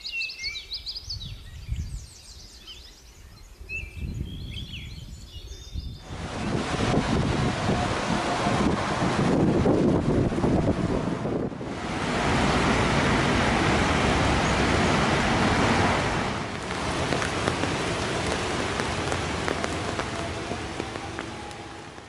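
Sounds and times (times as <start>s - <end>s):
rain hissing: 6.0s - 22.0s
drops ticking on leaves: 16.5s - 22.0s.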